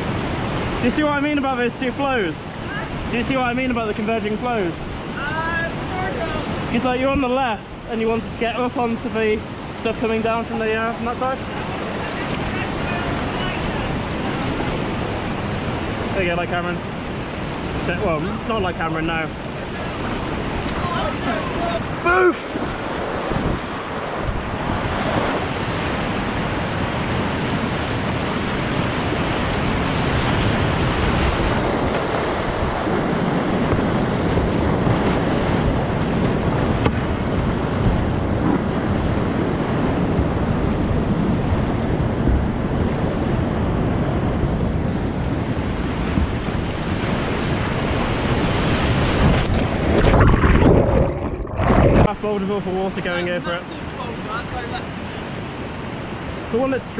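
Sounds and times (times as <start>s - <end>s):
wind on microphone: 0.0s - 1.4s, 2.1s - 54.2s
whitewater rapids rushing: 0.0s - 41.7s
dull underwater rumble: 49.3s - 52.2s.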